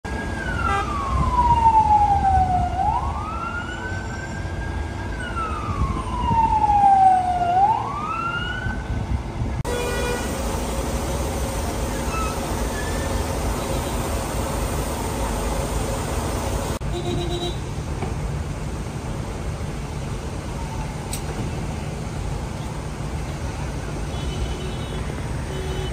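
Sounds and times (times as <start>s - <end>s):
street and traffic noise: 0.0s - 25.9s
ambulance siren wailing: 0.1s - 8.8s.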